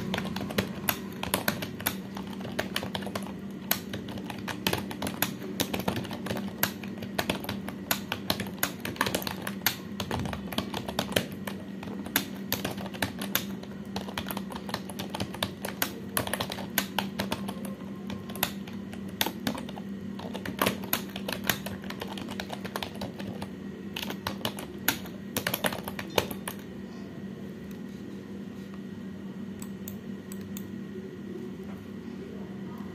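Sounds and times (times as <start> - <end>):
fast typing on keyboard: 0.0 - 26.6
steady low hum: 0.0 - 32.9.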